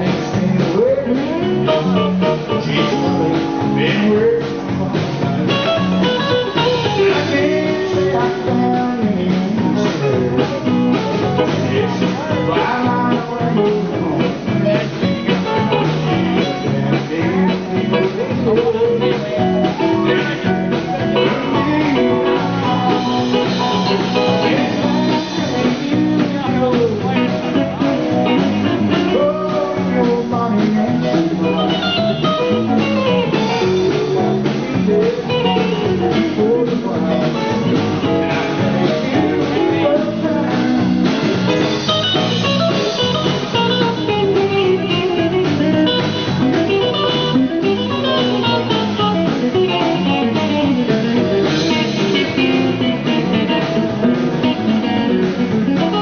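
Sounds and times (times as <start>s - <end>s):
bass and drum backing: 0.0s - 56.0s
electric guitar solo with bent notes: 5.3s - 7.9s, 9.8s - 26.2s, 27.0s - 56.0s.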